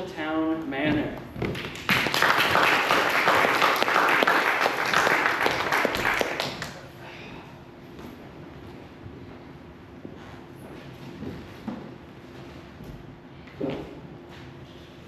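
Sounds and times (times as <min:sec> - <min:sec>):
audience applauding: 0:01.6 - 0:06.9.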